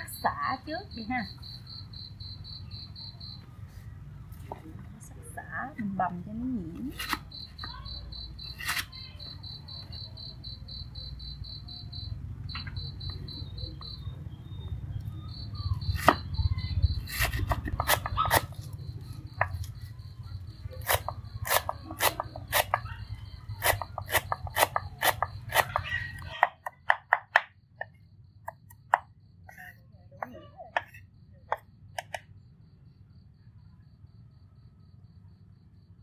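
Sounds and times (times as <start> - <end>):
cleaver chopping on wooden board: 16.0 - 16.3, 17.1 - 18.5, 23.6 - 25.8, 26.4 - 27.5.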